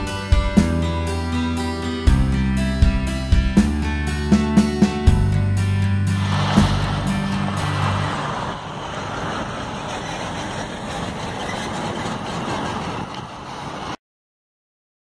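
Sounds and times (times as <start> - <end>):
busy street ambience: 6.1 - 14.0.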